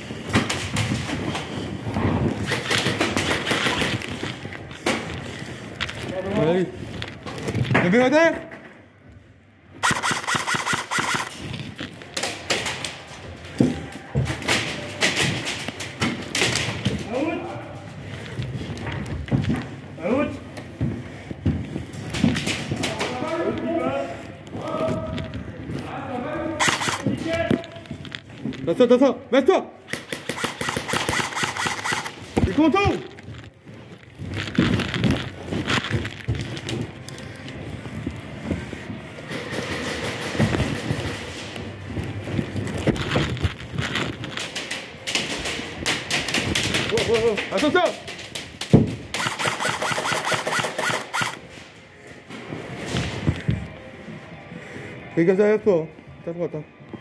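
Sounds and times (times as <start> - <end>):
footsteps: 0.0 - 55.1
airsoft gun firing bursts: 9.8 - 11.4, 26.6 - 27.1, 29.9 - 32.2, 49.1 - 51.4
gear rustling: 30.1 - 48.2.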